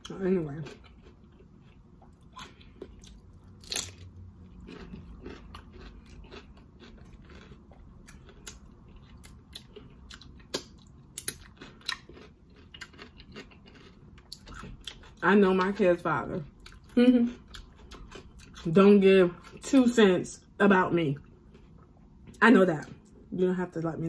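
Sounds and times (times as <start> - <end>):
cucumber crunching being chewed: 0.0 - 15.8, 16.5 - 18.7.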